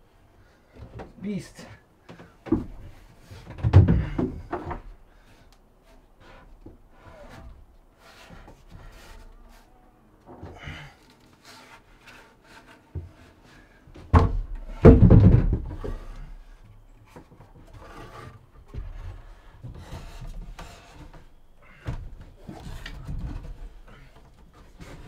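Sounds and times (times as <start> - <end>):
wood scraping and knocking on wood: 2.0 - 25.0
heavy wooden log thud: 3.5 - 4.9, 14.0 - 16.4.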